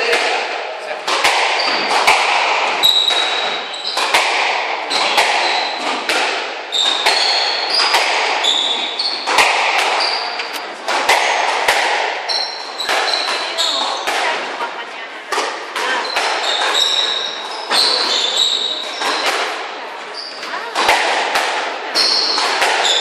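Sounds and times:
squash ball smacking: 0.0s - 23.0s
sneakers squeaking on wooden floor: 1.1s - 23.0s.

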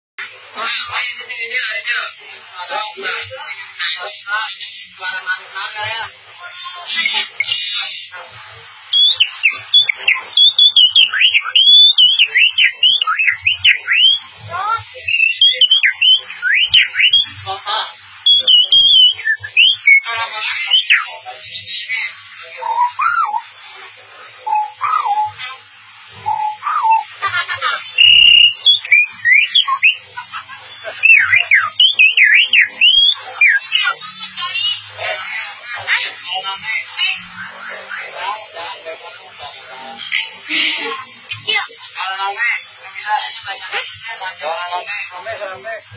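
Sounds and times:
boy whistling birdsong imitation: 8.9s - 14.2s, 15.1s - 17.3s, 18.3s - 20.1s, 28.0s - 30.0s
boy whistling birdsong: 28.0s - 30.0s.

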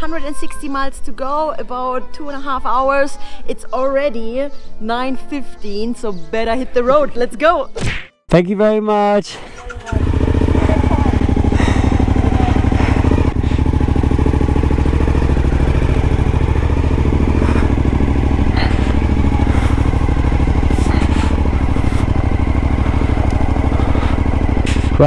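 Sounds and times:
motorcycle engine running at low revs: 9.6s - 25.0s.

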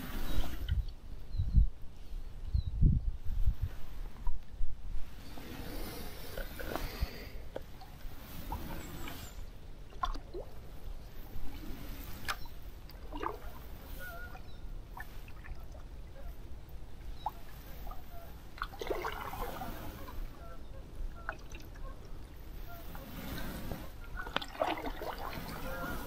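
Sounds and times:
paddle stroke sloshing water: 5.3s - 16.2s, 17.1s - 26.0s
water dripping from paddle: 9.9s - 10.6s, 12.2s - 16.2s, 18.5s - 19.6s, 21.2s - 22.3s, 24.2s - 25.6s.

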